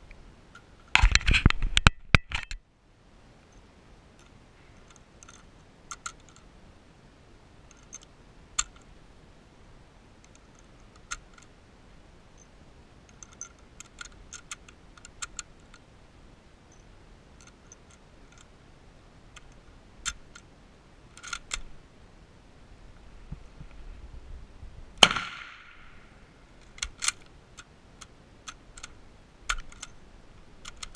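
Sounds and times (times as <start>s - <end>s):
rifle handling clicks and taps: 4.2s - 6.5s, 13.1s - 15.8s, 17.4s - 18.5s, 21.2s - 21.7s, 26.6s - 30.9s.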